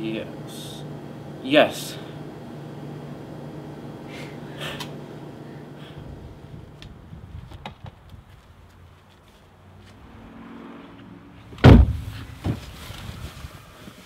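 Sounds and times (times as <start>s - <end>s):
car doors slamming shut: 11.5s - 12.7s.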